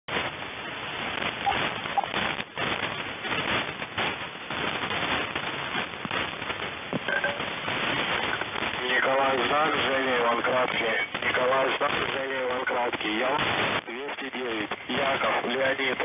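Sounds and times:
radio static: 0.0 - 16.0
higher beep: 7.1 - 7.4
short beeps: 7.1 - 7.4.

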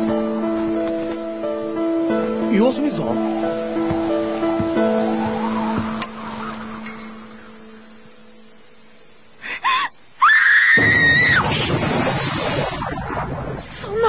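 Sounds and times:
loud rush of noise: 2.9 - 7.8
woman gasping: 9.4 - 10.0
woman screaming: 9.7 - 11.4.

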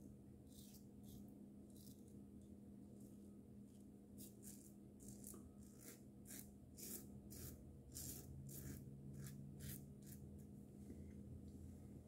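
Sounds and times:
razor scraping stubble: 4.2 - 10.2.

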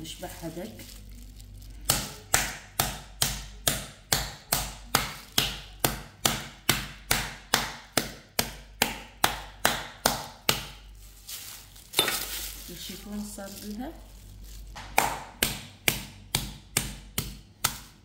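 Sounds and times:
metal mallet pounding chicken: 1.9 - 10.8, 14.8 - 18.0.

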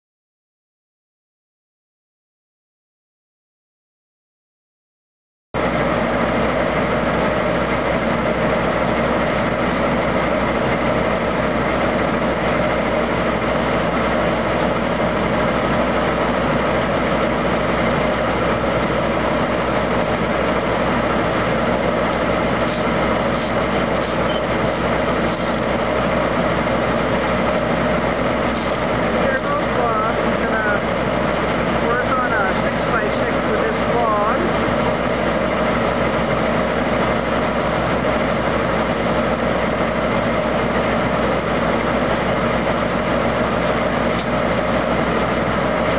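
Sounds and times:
circular sawmill running: 5.6 - 45.9.

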